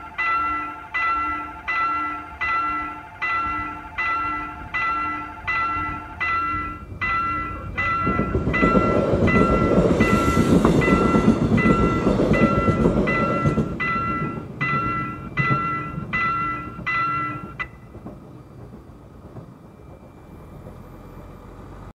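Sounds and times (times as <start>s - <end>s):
railroad crossing bell ringing: 0.0s - 21.9s
train wheels rumbling on rails: 0.0s - 21.9s.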